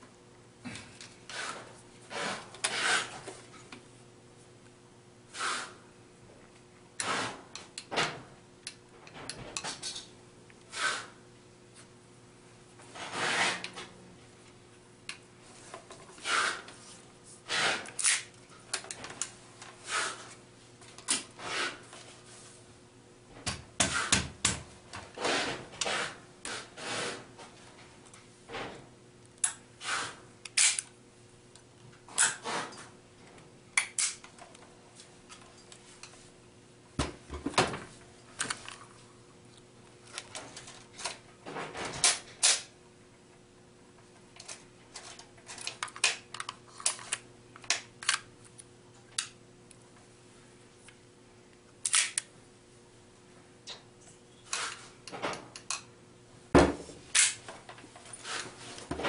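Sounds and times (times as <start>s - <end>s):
pistol slide clicks and clacks: 30.5s - 30.9s, 51.8s - 52.3s, 57.2s - 57.4s.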